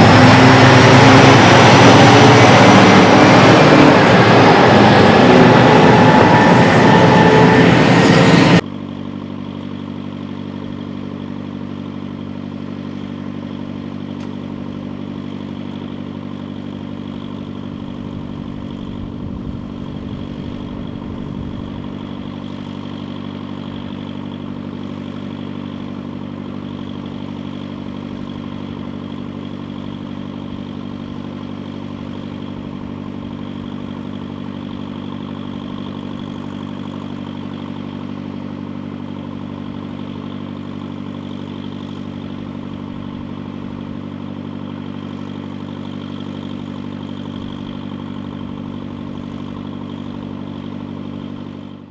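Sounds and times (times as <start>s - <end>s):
excavator diesel engines idling: 0.0s - 51.9s
low rumble: 1.1s - 8.6s, 17.6s - 22.5s.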